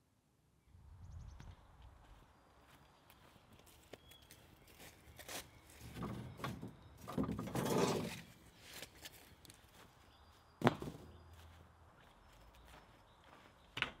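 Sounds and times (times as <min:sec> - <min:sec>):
metal rods rattling and knocking: 0:05.8 - 0:08.4.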